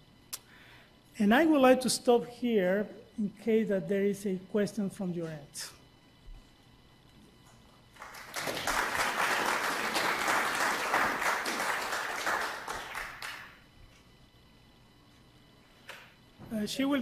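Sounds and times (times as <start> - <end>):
audience applauding: 8.0 - 13.6.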